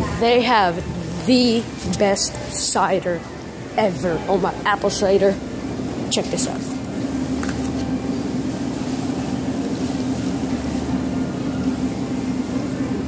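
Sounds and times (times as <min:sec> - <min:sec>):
refrigeration machinery humming: 0:00.0 - 0:13.0.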